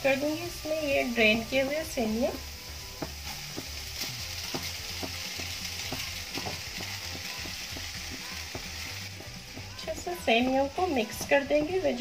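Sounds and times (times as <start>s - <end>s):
vegetables sizzling in a pan: 0.0s - 12.0s
spatula tapping and scraping pan: 4.4s - 11.8s.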